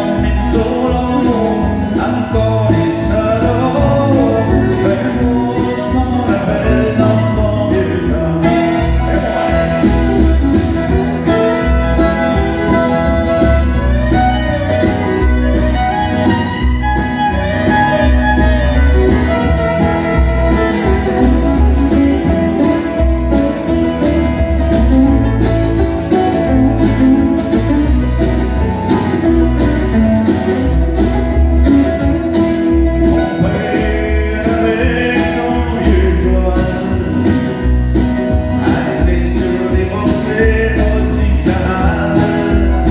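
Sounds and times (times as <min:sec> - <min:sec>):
man singing: 0:00.0 - 0:11.7, 0:33.2 - 0:42.9
strummed acoustic guitars: 0:00.0 - 0:42.9
fiddle playing: 0:08.4 - 0:36.6.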